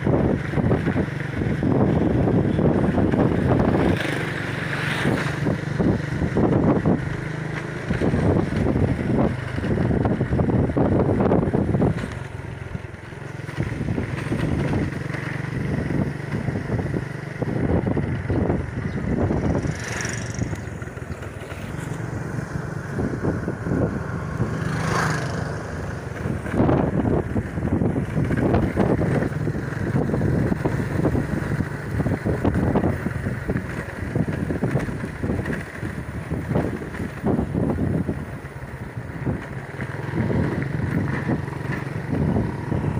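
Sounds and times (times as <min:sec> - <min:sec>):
motorcycle engine running: 0:00.0 - 0:42.9
road noise: 0:00.0 - 0:42.9
wind buffeting on microphone: 0:00.0 - 0:42.9.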